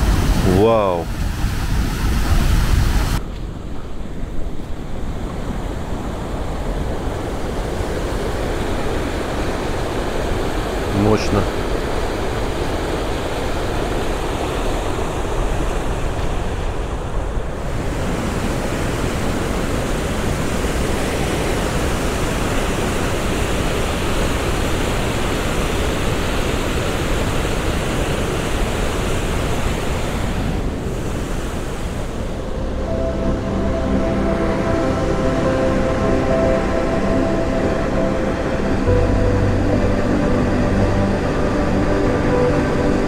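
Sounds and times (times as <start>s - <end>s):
waterfall rushing: 0.0s - 3.2s, 6.2s - 16.2s.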